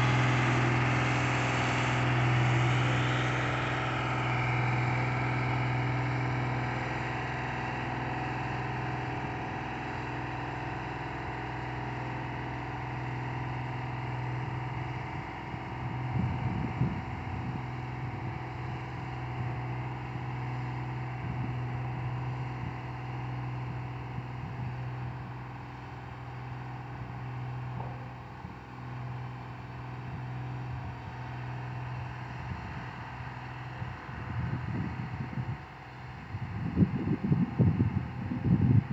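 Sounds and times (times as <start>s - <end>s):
road roller diesel engine: 0.0s - 38.9s
wind buffeting microphone: 14.3s - 19.8s, 21.2s - 22.8s, 23.6s - 25.4s, 30.1s - 38.9s.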